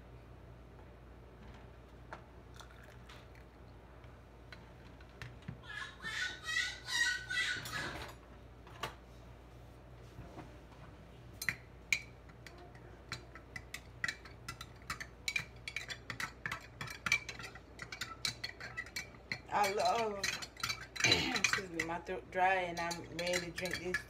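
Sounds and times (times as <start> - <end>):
spoon clinking in glass jar: 13.6 - 21.9, 22.7 - 24.0.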